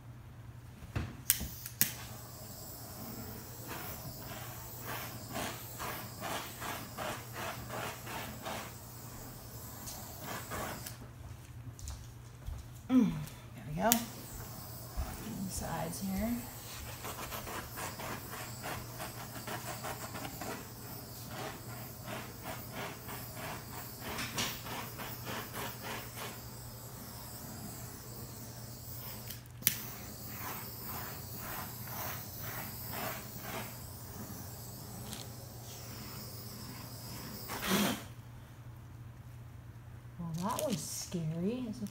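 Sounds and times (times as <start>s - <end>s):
torch hissing: 1.3s - 11.0s, 13.6s - 38.2s.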